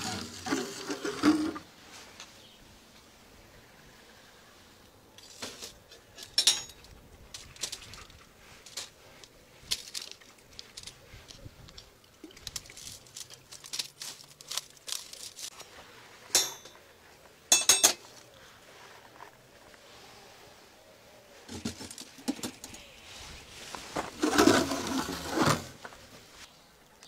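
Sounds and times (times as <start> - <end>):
metal clinks: 6.2 - 6.9, 17.5 - 18.0
bread crackling and tearing: 12.4 - 15.6.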